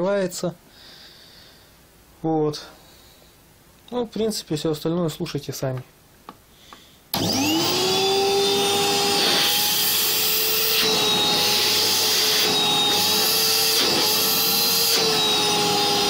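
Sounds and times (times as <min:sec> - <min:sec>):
vacuum cleaner motor whine: 0:07.1 - 0:16.0.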